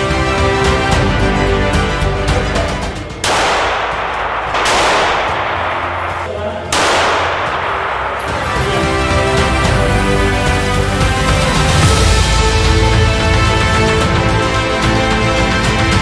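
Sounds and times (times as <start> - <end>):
pistol shots echoing indoors: 3.2 - 8.7.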